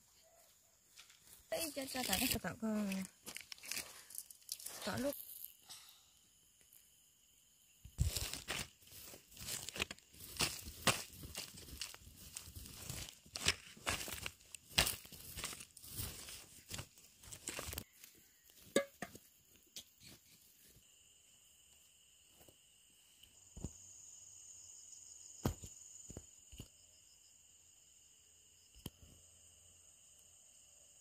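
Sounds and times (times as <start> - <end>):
insects chirring: 0.0 - 31.0
handling noise rustling: 8.0 - 17.8.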